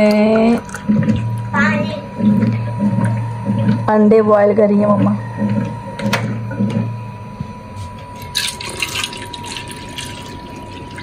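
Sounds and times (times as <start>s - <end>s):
water pouring into steel bowl: 8.3s - 11.0s.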